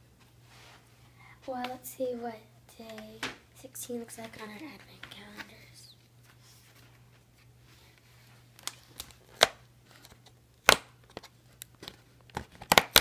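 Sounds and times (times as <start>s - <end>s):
faint low hum: 0.0s - 12.7s
cardboard snaps: 10.6s - 11.3s, 12.3s - 13.0s.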